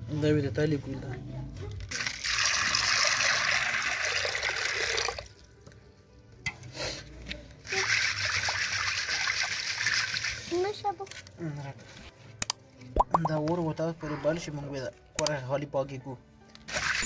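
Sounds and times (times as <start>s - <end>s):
water pouring into a metal pot: 1.9s - 5.5s, 7.6s - 10.5s, 16.7s - 17.0s.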